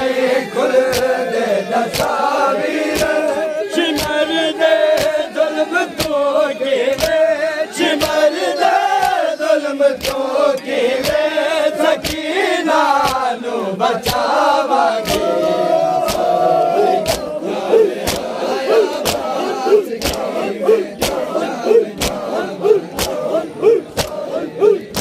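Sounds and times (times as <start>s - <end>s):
men chanting in unison: 0.0s - 25.0s
hand slaps on chest: 0.9s - 1.2s, 1.8s - 2.2s, 2.9s - 4.2s, 4.9s - 5.2s, 6.0s - 6.2s, 6.9s - 7.2s, 8.0s - 8.2s, 9.0s - 9.2s, 10.0s - 10.2s, 11.0s - 11.2s, 12.0s - 12.2s, 13.0s - 13.3s, 14.0s - 14.3s, 15.0s - 15.3s, 16.0s - 16.3s, 17.0s - 17.4s, 18.0s - 18.3s, 18.9s - 19.3s, 20.0s - 20.3s, 21.0s - 21.3s, 22.0s - 22.2s, 23.0s - 23.2s, 23.9s - 24.2s.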